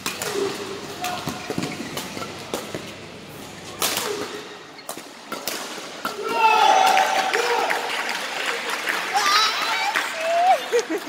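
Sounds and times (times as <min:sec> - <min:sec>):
shoes squeaking on court floor: 0:00.0 - 0:05.4.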